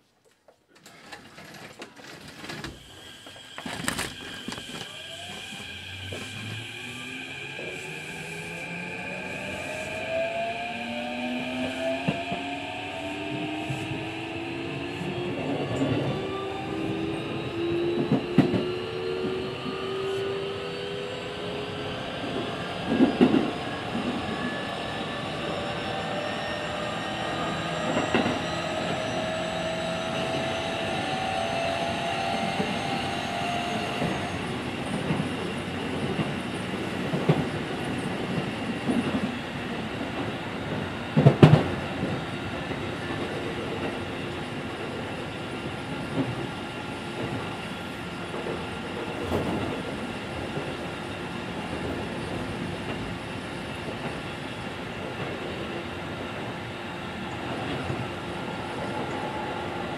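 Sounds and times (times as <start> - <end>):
electric train motor whine: 2.3 - 21.5.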